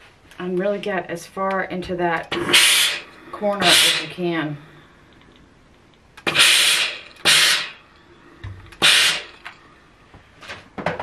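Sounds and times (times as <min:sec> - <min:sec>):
steam iron hissing: 0:02.3 - 0:04.9, 0:06.2 - 0:09.6.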